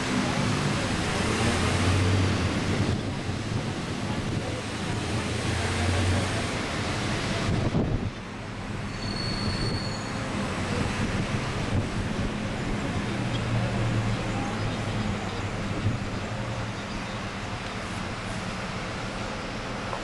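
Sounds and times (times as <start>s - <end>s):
bus engine hum: 0.0s - 20.0s
road noise: 0.0s - 20.0s
wind on microphone: 1.8s - 5.0s, 7.2s - 8.2s
faint high squeal: 8.9s - 10.3s.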